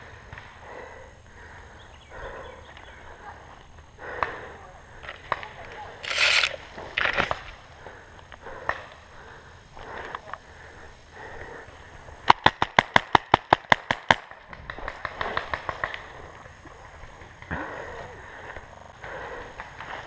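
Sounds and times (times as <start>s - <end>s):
rustling movement through brush: 5.8s - 7.7s.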